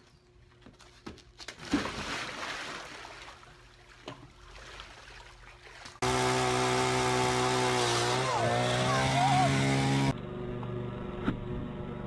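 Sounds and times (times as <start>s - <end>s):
water sloshing and dripping: 1.4s - 6.0s
person splashing into water: 1.5s - 6.0s
small gas engine running: 6.0s - 12.0s.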